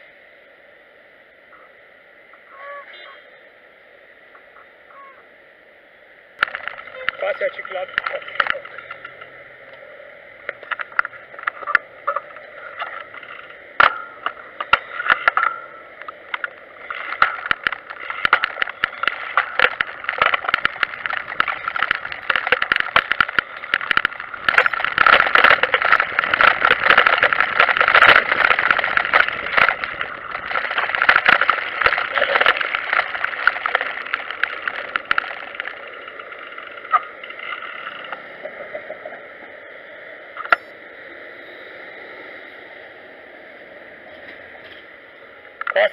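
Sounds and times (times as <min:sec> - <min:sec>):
tricycle rattling over cobbles: 0:06.4 - 0:09.5, 0:10.3 - 0:39.1.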